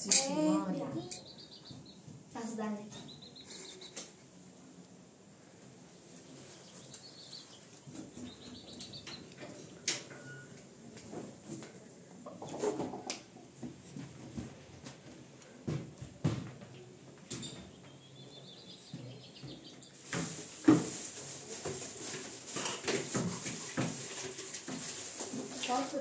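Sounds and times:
household knocks and thumps: 15.6 - 16.7, 20.1 - 21.0.

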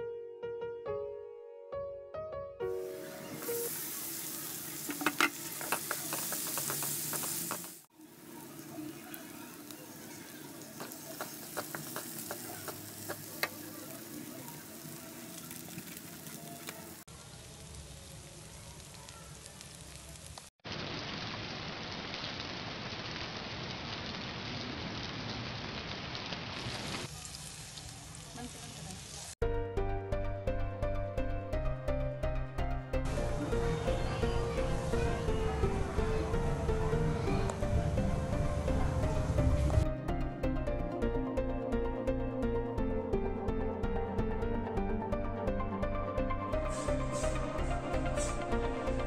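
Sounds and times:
vegetables sizzling in oil: 2.8 - 29.4, 46.5 - 49.0.

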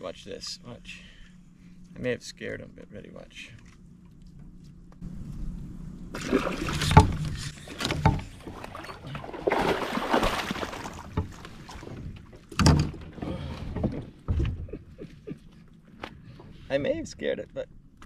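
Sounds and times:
fish splashing and thrashing: 6.1 - 14.2.

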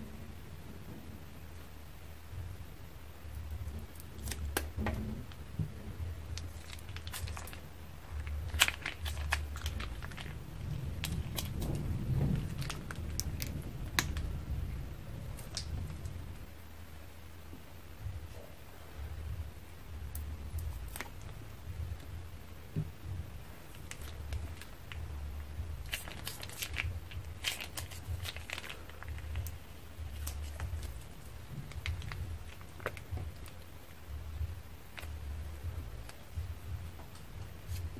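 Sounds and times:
slime crackling: 3.3 - 16.4, 20.0 - 22.2, 23.3 - 37.9
plastic piping bag crinkling: 3.5 - 16.2, 20.1 - 22.1, 23.4 - 37.9.

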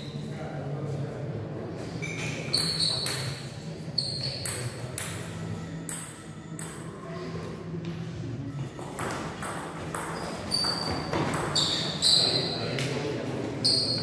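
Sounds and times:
shoe squeaks: 2.0 - 4.7, 10.0 - 12.9, 13.6 - 14.0
ping pong ball clicking: 4.3 - 6.8.

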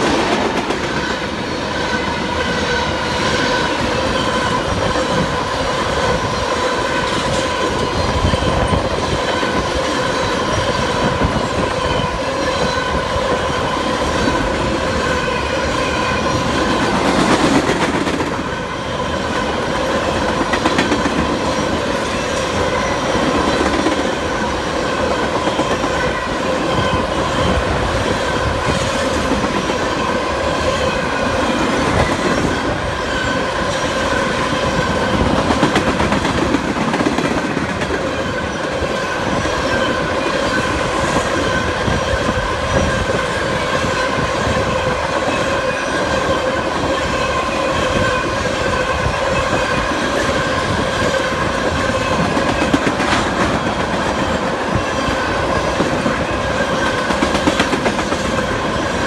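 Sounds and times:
train wheels rumbling on rail: 0.0 - 59.0
high ringing wheel squeal: 1.0 - 5.4, 6.0 - 16.8, 38.0 - 52.6.

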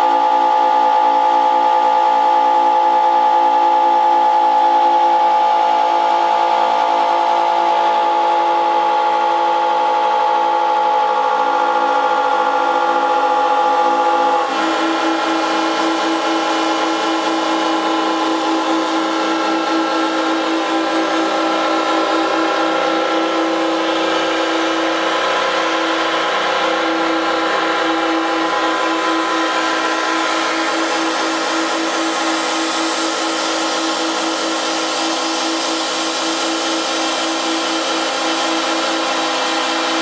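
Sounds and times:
buzzing reedy drone: 0.0 - 40.0.

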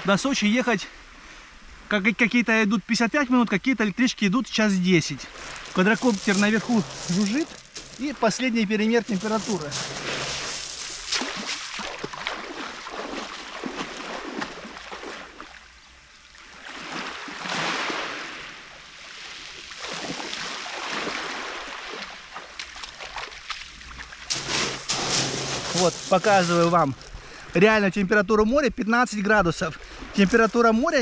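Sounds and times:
sea waves washing onto shore: 5.1 - 15.6, 16.5 - 27.2.

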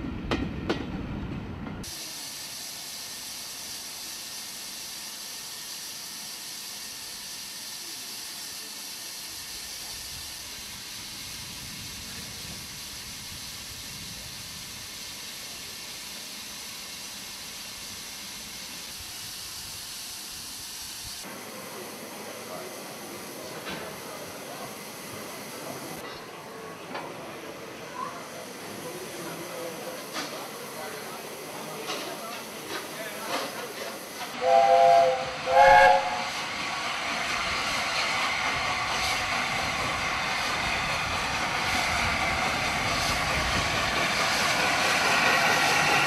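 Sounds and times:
train rumbling past: 0.0 - 2.2, 21.2 - 46.0
steam hissing from locomotive: 1.8 - 46.0
train wheels clicking: 29.9 - 35.2, 35.9 - 46.0.

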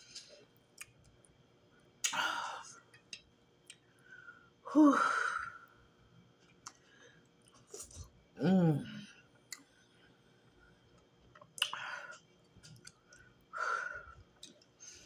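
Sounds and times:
woman moaning: 4.7 - 5.6, 8.4 - 9.1
woman sighing heavily: 8.4 - 9.0.

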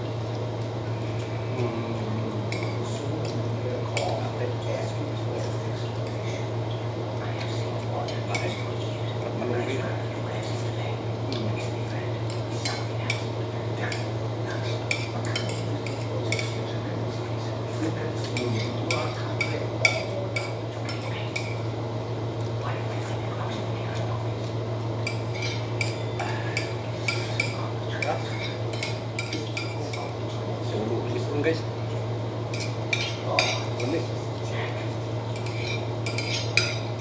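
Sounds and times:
steady low hum: 0.0 - 37.0
cutlery clinking on a plate: 13.9 - 16.6, 18.3 - 21.6, 25.0 - 30.1, 32.5 - 33.9, 35.4 - 36.9.

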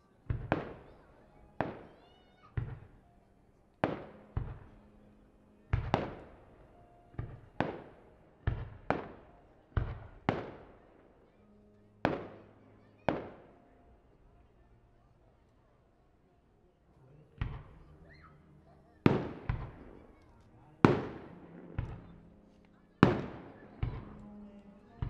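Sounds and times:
fireworks bursting with bangs: 0.3 - 3.0, 3.8 - 5.0, 5.7 - 11.0, 12.0 - 13.6, 19.0 - 25.0.

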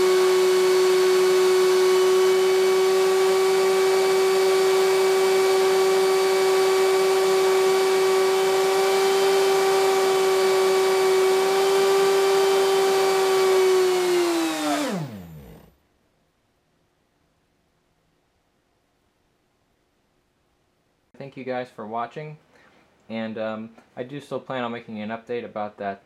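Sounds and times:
compressor whine: 0.0 - 15.8.

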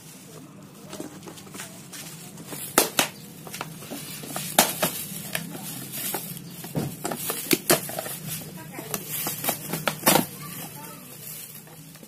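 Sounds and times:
plastic casing cracking: 2.4 - 12.0.

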